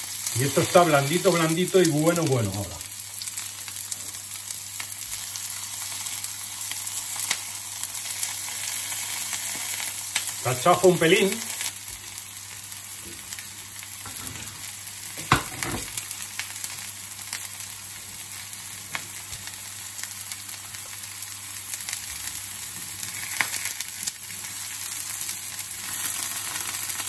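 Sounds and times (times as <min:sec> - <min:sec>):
food sizzling in frying pan: 0:00.0 - 0:27.0.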